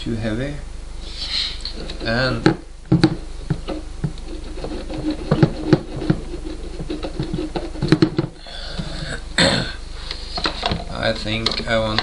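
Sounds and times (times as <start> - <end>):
steady low hum: 0.0 - 12.0
plastic clicks and knocks: 7.2 - 8.4.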